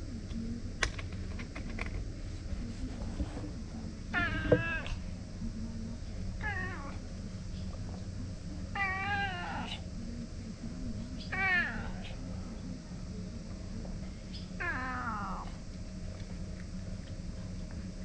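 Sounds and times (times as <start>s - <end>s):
cat meowing: 4.2s - 5.0s, 8.8s - 9.8s, 11.2s - 12.2s, 14.6s - 15.5s.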